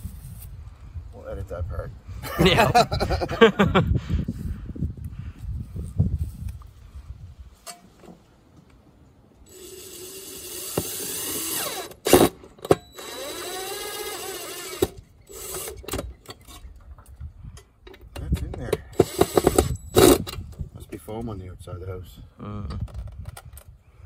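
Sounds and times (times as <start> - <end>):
cordless drill motor: 9.5 - 15.9, 19.0 - 20.2.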